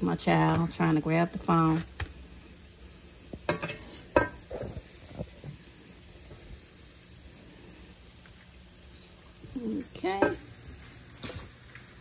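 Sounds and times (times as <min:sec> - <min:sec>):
faint steady background noise: 0:00.0 - 0:12.0
metal spatula scraping frying pan: 0:03.5 - 0:04.7.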